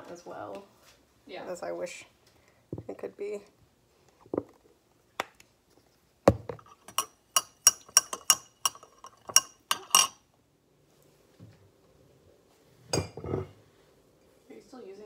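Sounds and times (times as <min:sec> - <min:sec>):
spoon clinking against glass: 0:06.9 - 0:10.2.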